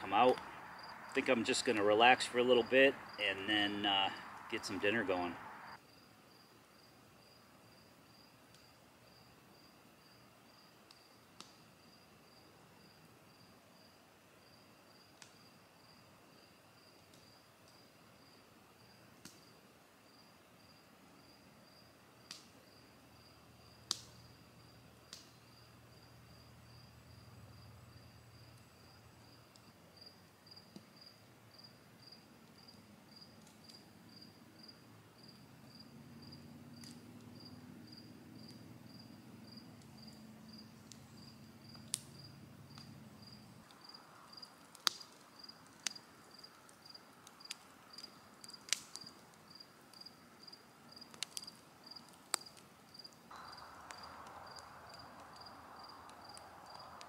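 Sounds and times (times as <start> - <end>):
campfire popping: 0.0 - 5.8, 6.5 - 13.6, 14.4 - 19.8, 21.1 - 57.0
cricket chirping: 0.2 - 1.8, 5.3 - 11.2, 22.6 - 57.0.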